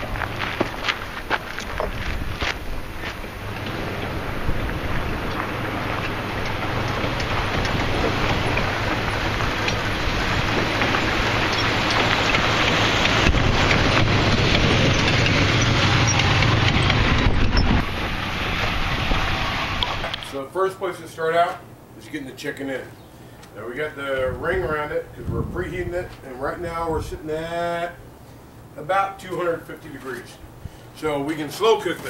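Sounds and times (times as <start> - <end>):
tyres rushing on dirt: 0.0 - 20.4
van engine humming: 0.0 - 20.4
wind on microphone: 1.6 - 11.4, 13.1 - 20.1, 24.1 - 26.2.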